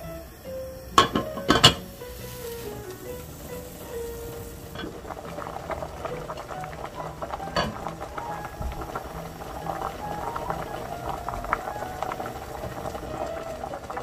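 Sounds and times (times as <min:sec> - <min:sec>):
soup boiling and bubbling: 0:00.0 - 0:14.0.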